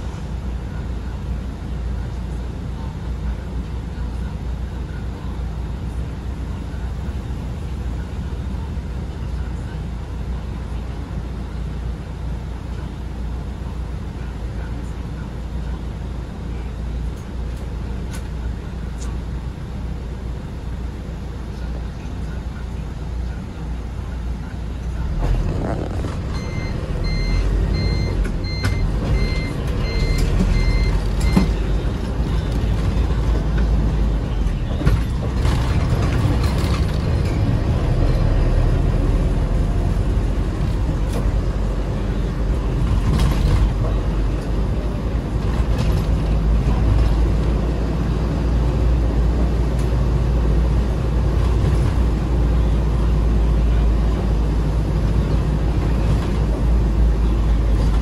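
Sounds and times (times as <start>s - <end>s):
diesel engine running: 0.0s - 58.0s
short beeps: 26.3s - 31.7s.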